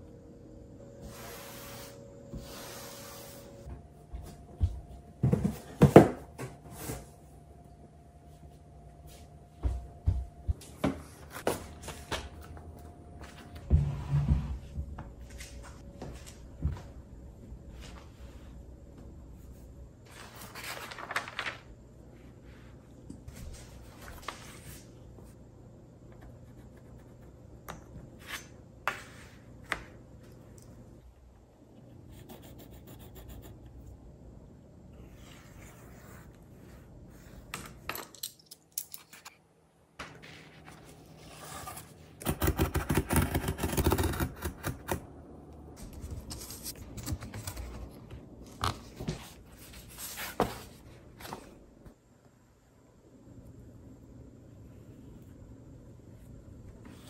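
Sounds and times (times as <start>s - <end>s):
pencil scratching on paper: 32.1s - 33.6s, 35.1s - 37.4s.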